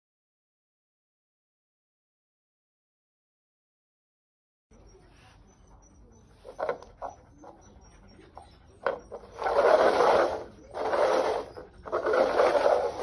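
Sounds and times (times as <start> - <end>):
cups scraping across tile: 5.1 - 13.0.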